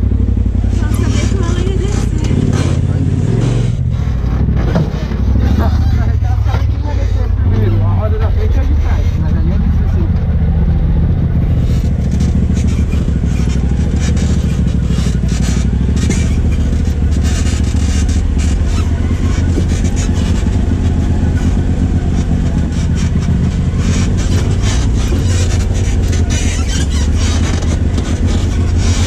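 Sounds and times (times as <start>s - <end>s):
chassis knocking and rattling: 0.0s - 29.0s
vehicle engine running: 0.0s - 29.0s.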